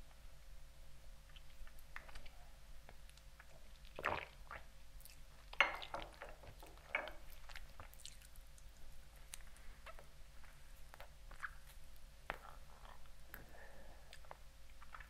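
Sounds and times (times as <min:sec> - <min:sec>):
wet lip smacks: 0:09.3 - 0:12.5.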